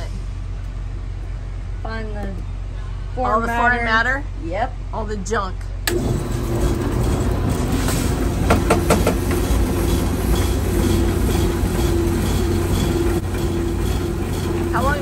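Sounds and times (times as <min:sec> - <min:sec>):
sieve machine hum and rattle: 0:05.9 - 0:15.0.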